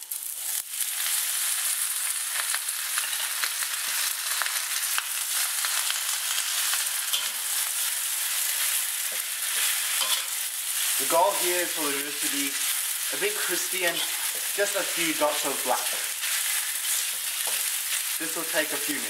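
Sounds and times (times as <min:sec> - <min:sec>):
noodles sizzling in hot oil: 0:00.0 - 0:19.0
metal spatula scraping a wok: 0:06.5 - 0:11.2, 0:13.9 - 0:14.5.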